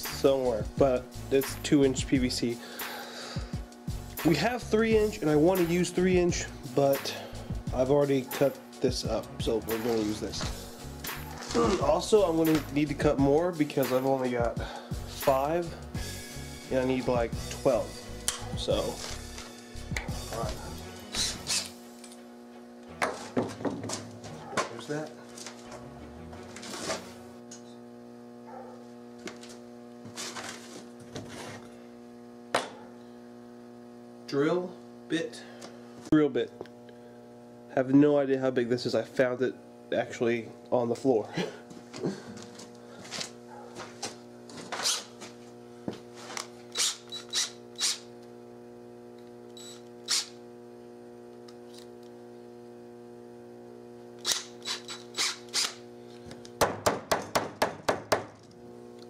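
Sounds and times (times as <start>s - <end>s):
electrical hum: 0.0s - 59.0s
objects knocking and rustling on workbench: 23.0s - 24.8s, 30.1s - 31.6s
drill clicks and knocks: 54.2s - 58.6s.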